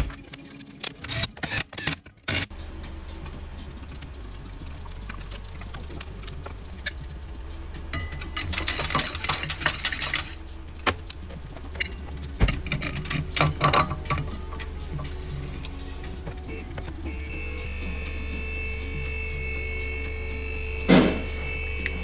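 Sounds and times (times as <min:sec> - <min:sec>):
steady low hum: 0:02.5 - 0:22.0
metal parts clinking and rattling: 0:07.8 - 0:17.1.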